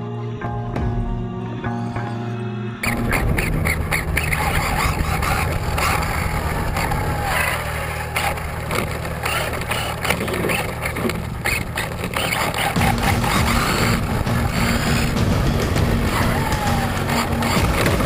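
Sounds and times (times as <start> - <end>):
motor and drivetrain hum: 0.0 - 18.0
tyre and road noise: 2.8 - 18.0
knocks from bumps: 11.5 - 18.0.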